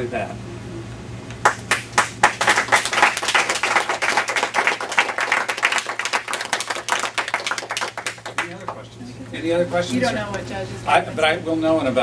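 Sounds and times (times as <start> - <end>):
audience applauding: 1.4 - 8.8.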